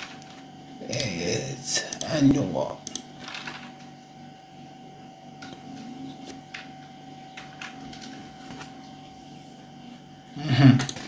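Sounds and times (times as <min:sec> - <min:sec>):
low background hum: 0:00.0 - 0:11.0
computer clicks: 0:02.8 - 0:03.9.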